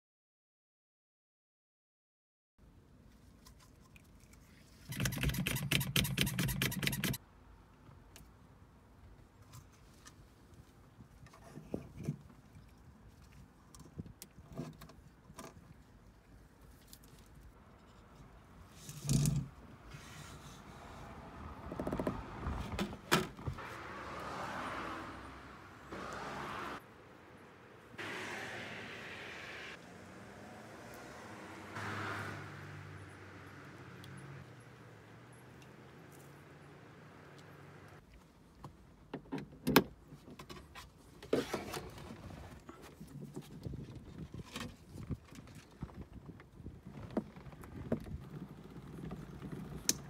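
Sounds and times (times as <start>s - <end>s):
sharp clicks and rattles: 4.9s - 7.2s
rattling scrape: 17.8s - 20.7s.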